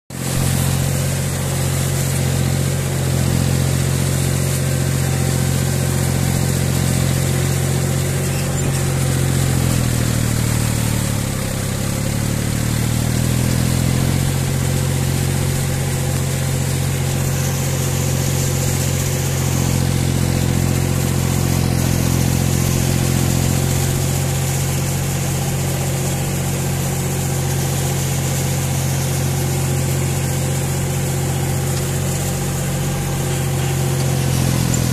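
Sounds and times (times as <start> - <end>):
tractor diesel engine running: 0.1 - 34.9.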